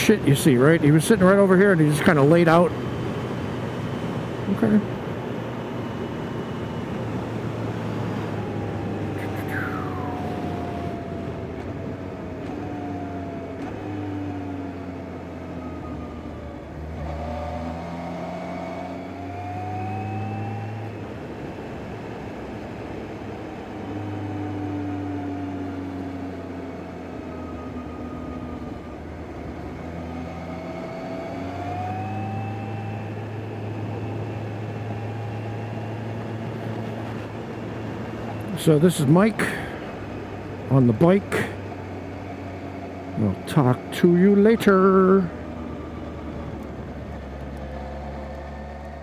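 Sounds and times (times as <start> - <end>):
motorcycle engine revving: 16.6 - 21.2.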